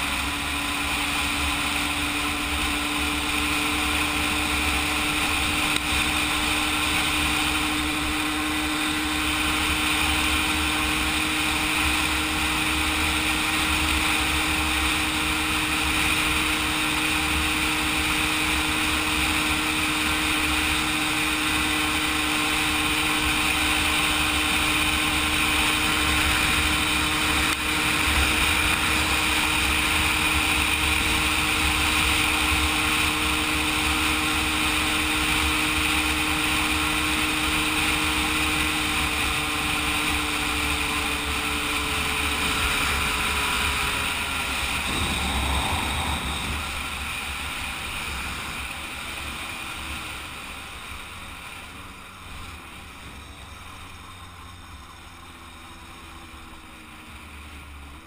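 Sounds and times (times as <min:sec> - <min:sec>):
moped engine running: 0:00.0 - 0:58.0
wind rumble on microphone: 0:44.8 - 0:47.5.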